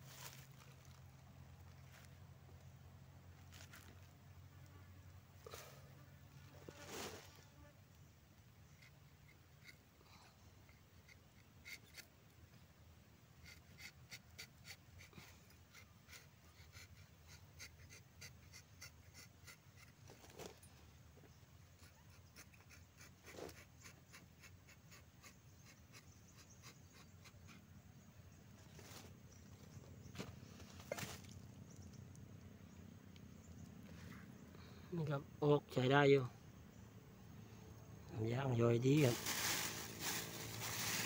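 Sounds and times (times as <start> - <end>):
knife scratching tree bark: 8.6 - 9.8, 10.6 - 12.1, 13.4 - 20.5, 21.8 - 27.6.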